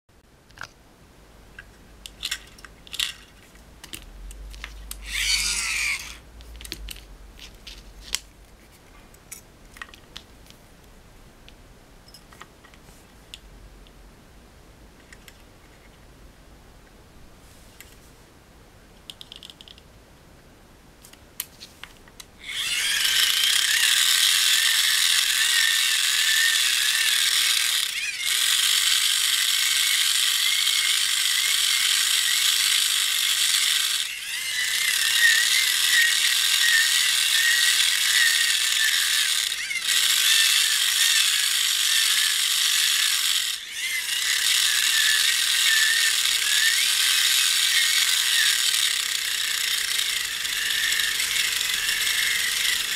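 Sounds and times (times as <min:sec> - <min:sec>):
gearbox whirring: 0:04.7 - 0:06.2, 0:22.4 - 0:52.9.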